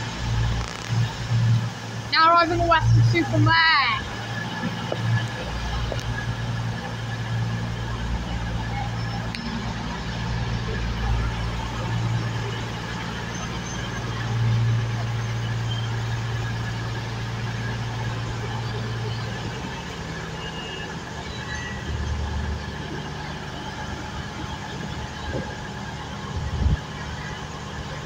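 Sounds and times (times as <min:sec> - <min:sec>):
train diesel engines droning: 0:00.0 - 0:28.0.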